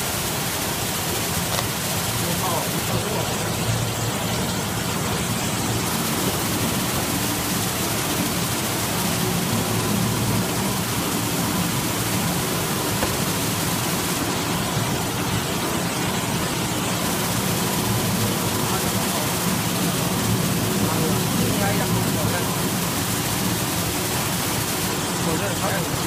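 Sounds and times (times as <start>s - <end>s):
wrapping machine running with hiss: 0.0s - 26.0s.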